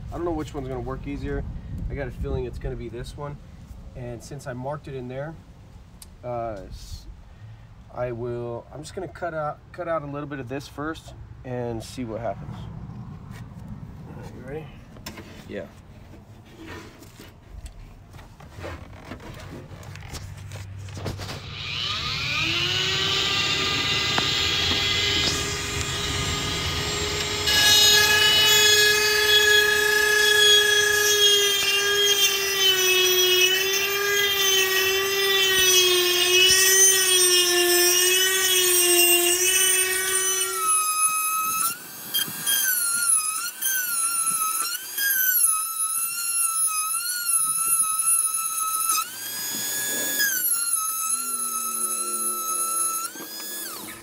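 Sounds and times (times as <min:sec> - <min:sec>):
rotary tool whining cutting metal: 0:18.5 - 0:54.0.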